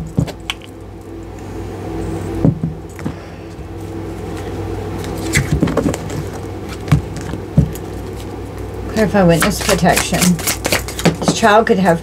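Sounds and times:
steady low hum: 0.0 - 12.0
cards shuffling: 9.4 - 11.3.

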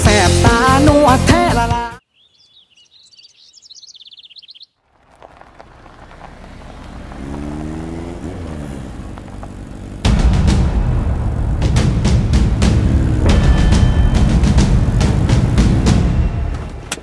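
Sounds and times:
birds chirping: 2.0 - 10.0
steady rushing noise: 10.0 - 17.0
low humming tone: 10.1 - 17.0.

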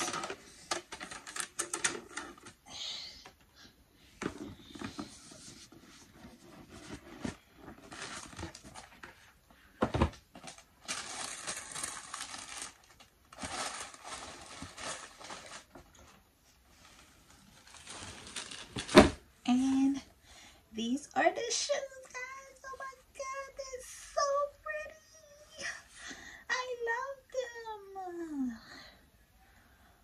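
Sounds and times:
tissue paper rustling: 4.7 - 9.4, 10.4 - 19.0.

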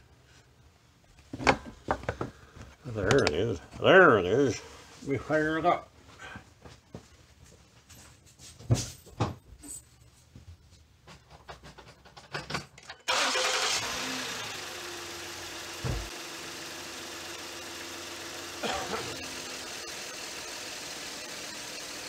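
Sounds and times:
car engine starting and idling: 13.1 - 21.4
thump: 15.8 - 16.1.

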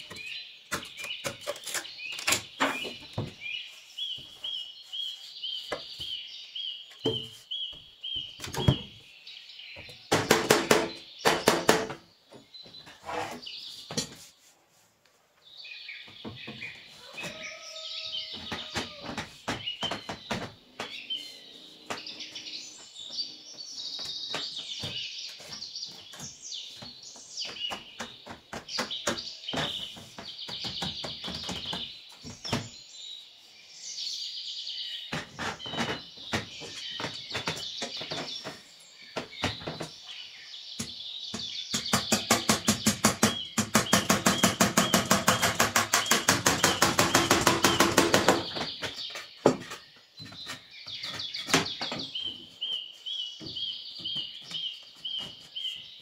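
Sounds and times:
small birds chirping: 0.0 - 56.0
sharp knocks and taps: 26.1 - 32.7, 40.8 - 52.3.

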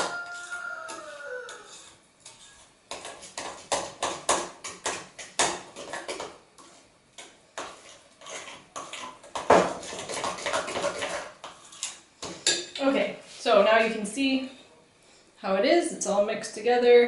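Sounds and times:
batter beaten in a glass bowl: 7.6 - 11.7.

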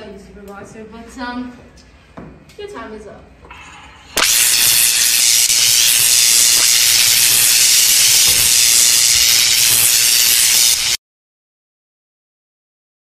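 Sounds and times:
loud steady hissing: 4.1 - 11.0.

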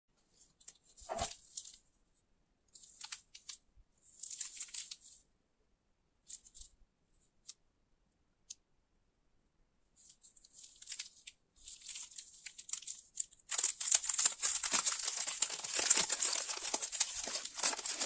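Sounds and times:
plastic wrapper crinkling: 0.4 - 1.8, 2.8 - 5.2, 10.2 - 18.0.

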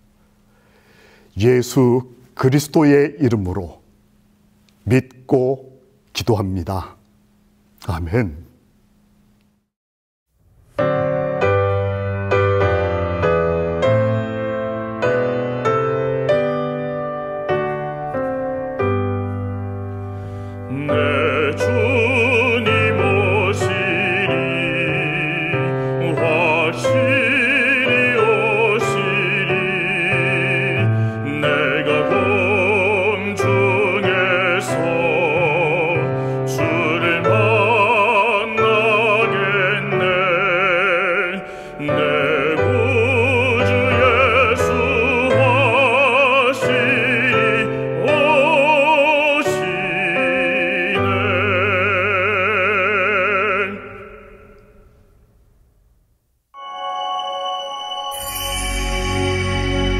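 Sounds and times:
classical-style singing with vibrato: 20.5 - 54.8
sustained instrumental accompaniment: 56.6 - 59.9.

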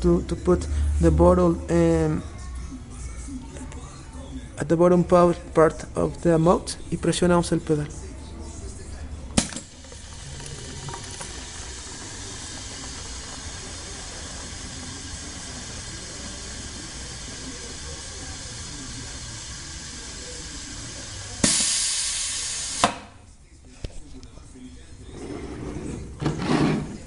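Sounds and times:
filling machine air hiss: 9.5 - 23.0.

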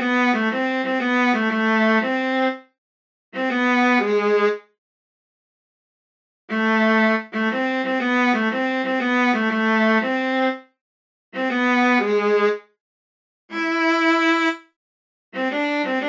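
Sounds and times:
sampled viola notes: 0.0 - 2.7, 3.4 - 4.6, 6.5 - 10.6, 11.4 - 12.6, 13.5 - 14.7, 15.4 - 16.0.

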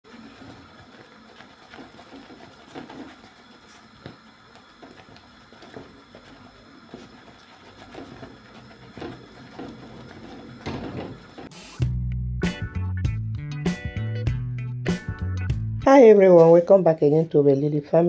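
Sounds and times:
spatula knocking and scraping pot: 0.1 - 11.6.

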